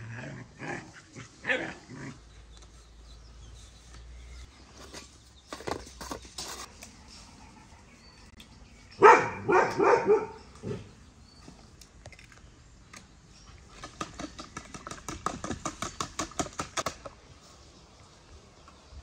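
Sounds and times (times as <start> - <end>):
dog barking: 9.0 - 10.8.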